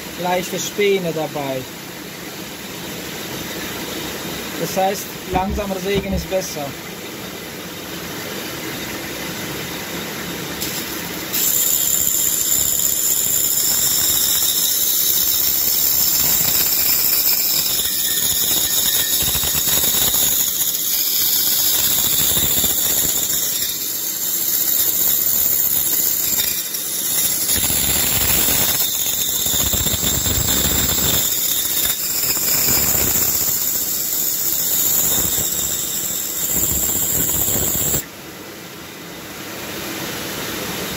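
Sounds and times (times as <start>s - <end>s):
band saw cutting wood: 4.6s - 6.7s, 10.6s - 38.0s.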